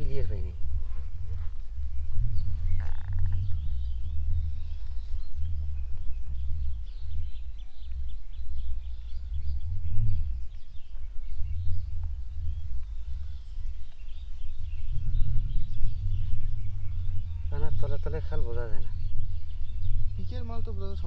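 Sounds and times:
faint bird chirps: 0.0s - 21.0s
low rumble: 0.0s - 21.0s.

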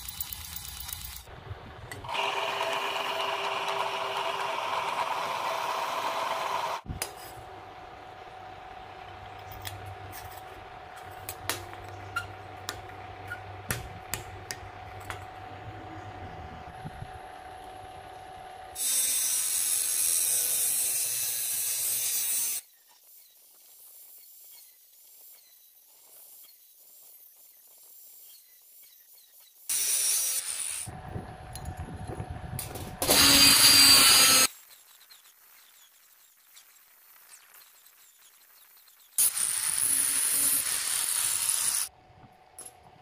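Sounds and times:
angle grinder cutting metal: 2.0s - 7.5s, 18.8s - 22.7s, 29.7s - 31.0s, 33.0s - 34.5s, 39.2s - 41.9s.

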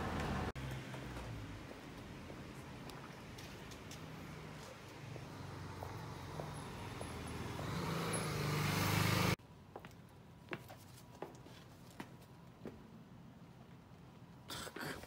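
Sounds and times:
road vehicle approaching: 0.0s - 9.4s.

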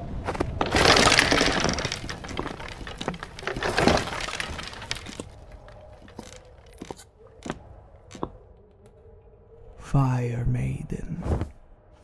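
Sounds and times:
cracks and crashes: 0.3s - 7.0s.

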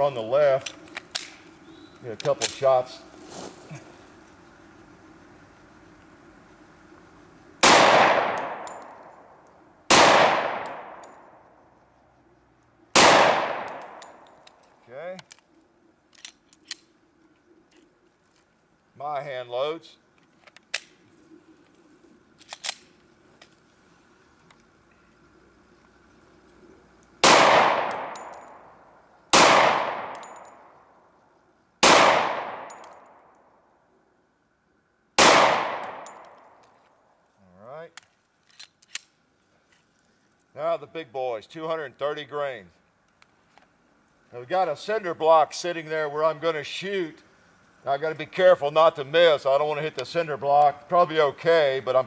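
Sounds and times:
pistol shots with echo: 7.6s - 11.4s, 12.9s - 14.2s, 27.2s - 28.6s, 29.3s - 30.7s, 31.8s - 33.1s, 35.2s - 36.5s.

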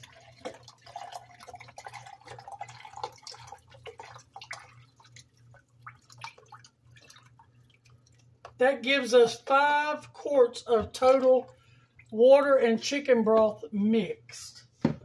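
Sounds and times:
broth pouring into plastic container: 0.0s - 8.2s
liquid dripping: 0.0s - 8.6s, 10.7s - 12.6s.

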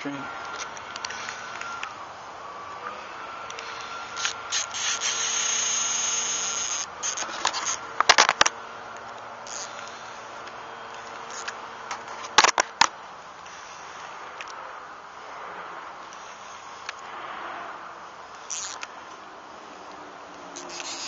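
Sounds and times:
fishing reel drag buzzing: 3.5s - 7.8s, 9.4s - 10.1s, 18.4s - 18.9s, 20.5s - 21.0s.

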